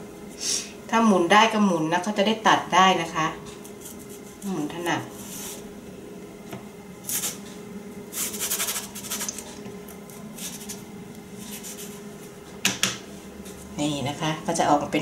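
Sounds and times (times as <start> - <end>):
cookie cutter scraping dough: 8.2 - 9.4.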